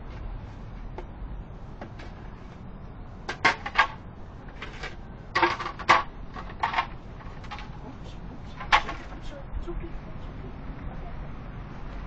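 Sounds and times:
metal bowls and cans clattering: 0:08.6 - 0:09.2.

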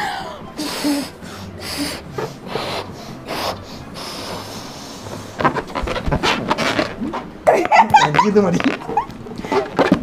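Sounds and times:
breath blown into balloons: 0:00.0 - 0:05.5
balloon rubbing and squeaking: 0:01.6 - 0:07.4, 0:08.0 - 0:10.0.

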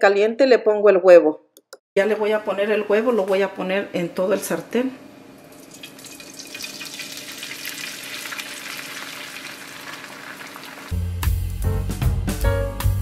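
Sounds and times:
eggs sizzling in a frying pan: 0:05.5 - 0:11.0
music with a beat: 0:11.0 - 0:13.0.

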